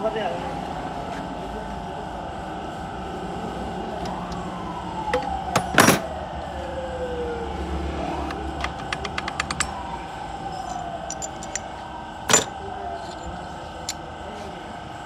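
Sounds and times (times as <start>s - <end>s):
steady background hum: 0.0s - 15.0s
slow falling whines: 3.1s - 14.3s
metal clinks and knocks of tools: 8.6s - 9.8s, 10.5s - 14.0s
ringing metal clank: 12.3s - 13.3s.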